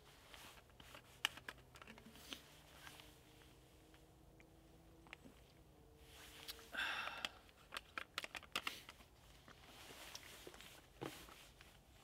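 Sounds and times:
rustling of gear: 7.5 - 12.0.

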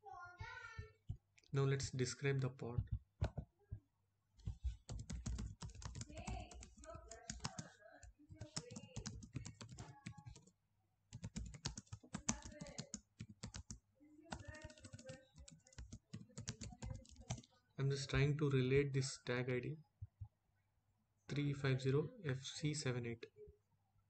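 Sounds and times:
typing on computer keyboard: 4.5 - 10.5, 11.1 - 17.5.

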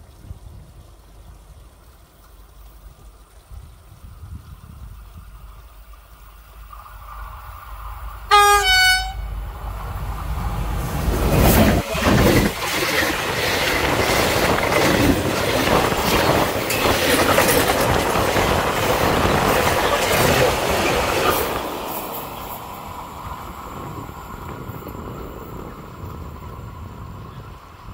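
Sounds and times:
locomotive passing: 0.1 - 27.9
two-note locomotive horn: 8.3 - 9.4
train wheels clacking on rails: 10.7 - 23.1.

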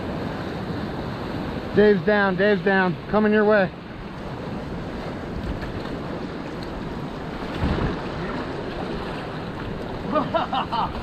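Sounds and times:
whitewater rapid rushing: 0.0 - 11.0
wind buffeting microphone: 3.9 - 10.1.

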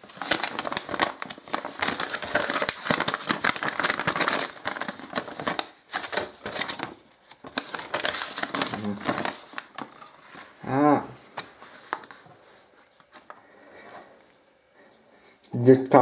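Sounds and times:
paper crinkling and rustling: 0.0 - 13.3.

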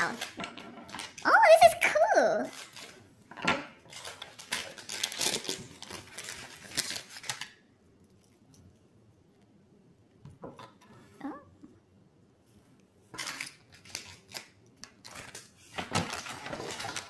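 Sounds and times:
foil wrappers crinkling: 0.0 - 3.0, 3.8 - 7.6, 13.2 - 17.0
scissors snipping foil: 4.0 - 7.5.

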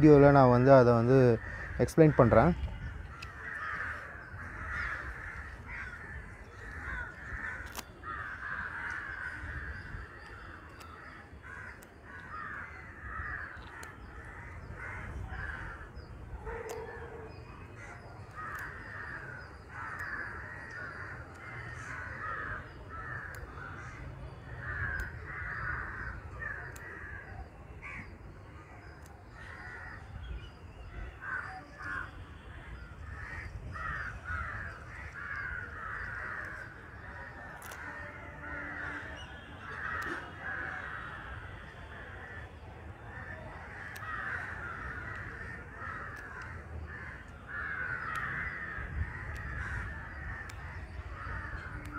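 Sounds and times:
crows cawing: 0.2 - 28.7, 29.3 - 30.3, 31.2 - 51.9
faint sharp clicks: 7.6 - 8.0, 11.7 - 12.4, 13.5 - 14.0, 16.6 - 17.0, 18.2 - 18.8, 19.8 - 21.8, 26.6 - 27.0, 37.4 - 38.0, 39.7 - 40.4, 43.8 - 44.4, 46.1 - 47.4, 48.0 - 48.4, 49.2 - 49.6.

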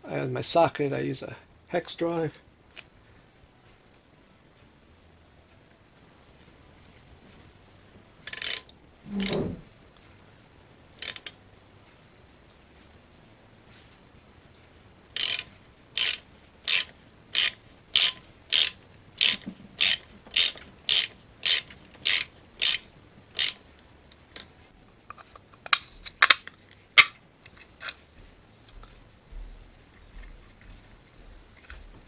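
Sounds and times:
socket ratchet clicking: 8.3 - 9.4, 11.0 - 11.4, 15.1 - 24.5.

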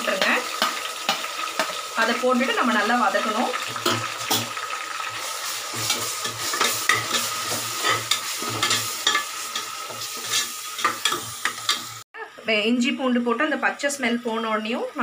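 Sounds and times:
onions sizzling in hot oil: 0.0 - 12.1
spatula scraping and knocking pot: 5.7 - 11.9.

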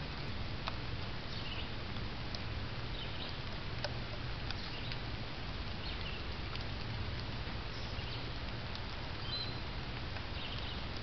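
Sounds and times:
outdoor background hiss: 0.0 - 11.0
small birds chirping: 1.2 - 1.8, 2.9 - 6.8, 7.6 - 11.0.

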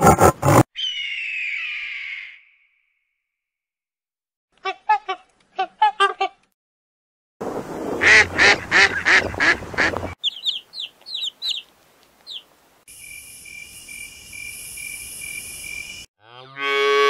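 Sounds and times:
geese honking: 8.0 - 10.6
parrot chicks squeaking: 9.8 - 12.4.

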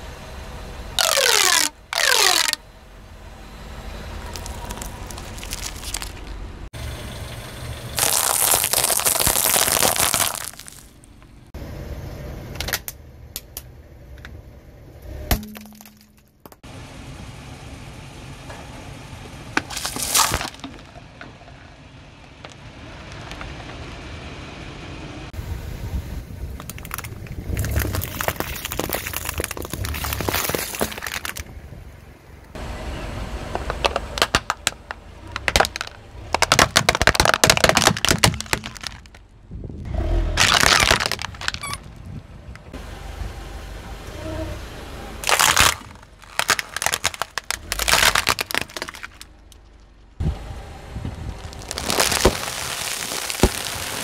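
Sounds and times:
brittle objects crunching under tyre: 1.0 - 2.6, 4.2 - 6.4, 8.0 - 11.1, 19.6 - 21.0, 26.5 - 31.5, 33.5 - 39.2, 40.2 - 42.1, 45.2 - 49.9, 51.1 - 54.0
low rumble: 16.7 - 36.4.

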